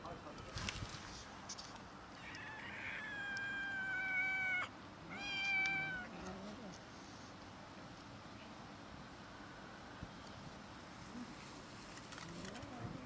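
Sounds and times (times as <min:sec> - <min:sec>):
cat meowing: 0:02.2 - 0:06.1.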